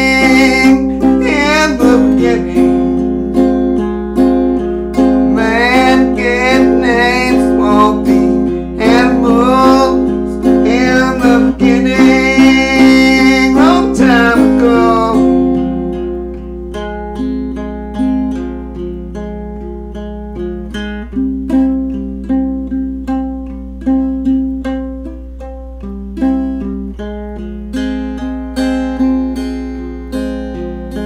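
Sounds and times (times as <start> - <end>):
acoustic guitar strumming: 0.0 - 31.0
sliding guitar melody: 0.0 - 31.0.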